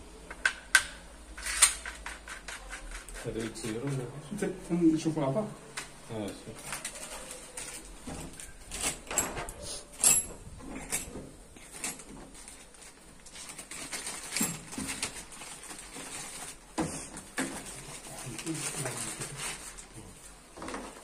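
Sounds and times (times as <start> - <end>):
plastic bag crinkling: 6.6 - 9.0, 11.6 - 21.0.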